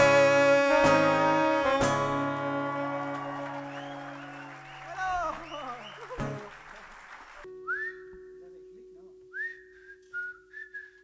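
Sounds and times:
crowd noise in a hall: 2.2s - 7.5s.

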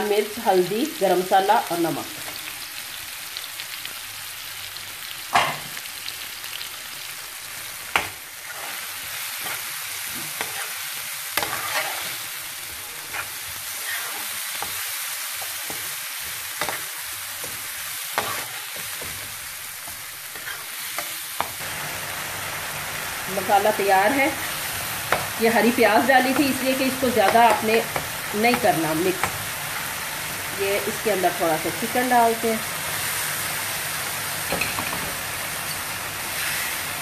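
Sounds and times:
food sizzling in a frying pan: 0.0s - 37.0s
metal spoon scraping a pan: 7.9s - 14.8s, 15.4s - 21.6s.

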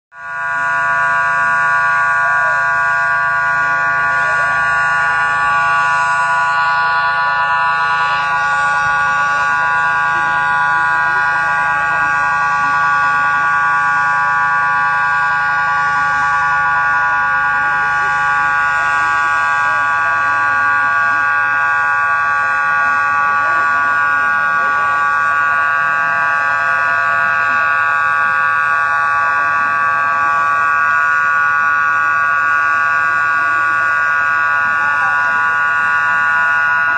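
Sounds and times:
low hum: 0.1s - 20.2s
loud steady buzzing drone: 0.1s - 36.9s.

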